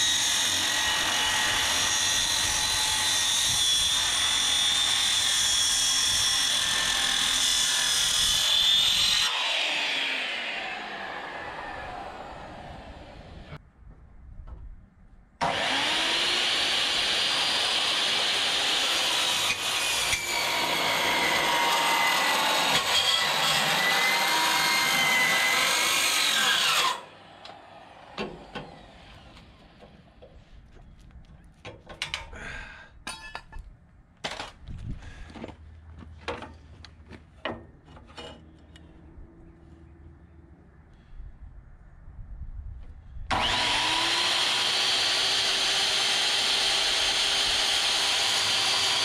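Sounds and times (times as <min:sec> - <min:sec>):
circular saw cutting steel: 0:00.0 - 0:13.6, 0:15.4 - 0:27.6, 0:43.3 - 0:49.0
metal clanks and knocks: 0:31.6 - 0:32.4, 0:33.0 - 0:34.6, 0:37.3 - 0:38.8.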